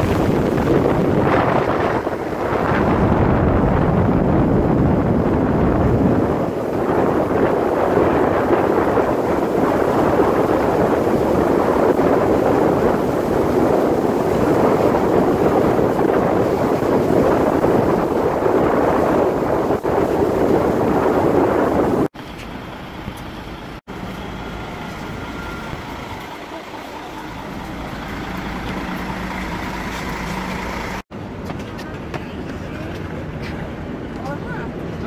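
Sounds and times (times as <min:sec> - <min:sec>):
wind on microphone: 0:00.0 - 0:22.2
wind and water rushing: 0:00.0 - 0:31.4.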